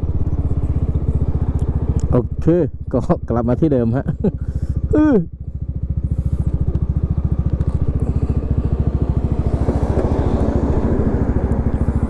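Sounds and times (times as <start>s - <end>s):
scooter engine idling: 0.0s - 12.0s
truck rumbling past: 6.0s - 12.0s.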